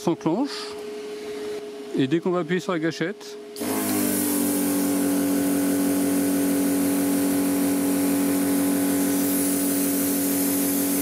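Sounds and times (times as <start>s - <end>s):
cooling fan hum: 0.0s - 11.0s
air compressor pulsing: 3.6s - 11.0s
air hissing from torch: 3.6s - 11.0s.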